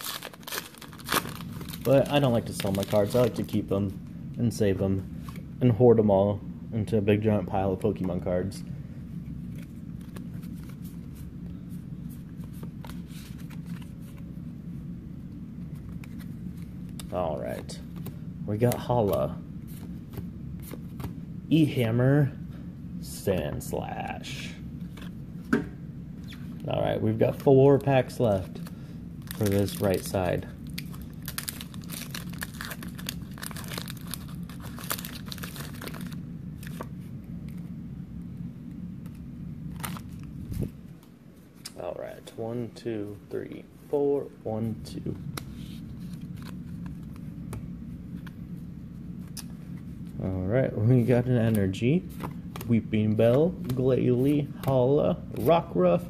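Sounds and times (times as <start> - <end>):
foil wrapper tearing and crinkling: 0.0 - 3.4, 30.7 - 36.2
cards snapping and rustling: 0.0 - 3.5, 29.2 - 36.9, 45.3 - 47.6
steady low hum: 0.0 - 56.0.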